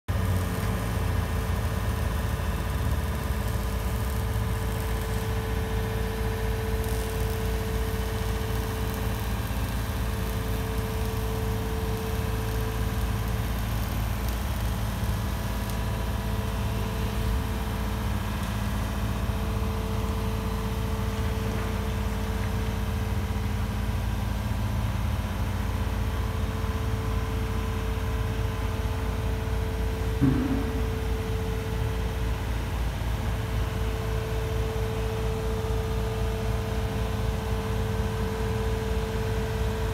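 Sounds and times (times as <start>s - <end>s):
higher-pitched hum: 30.2s - 31.8s.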